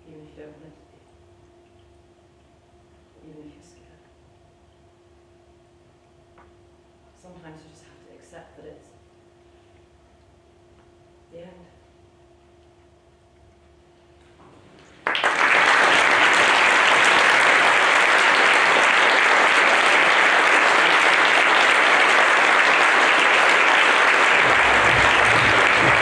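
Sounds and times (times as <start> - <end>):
audience applauding: 15.0 - 26.0.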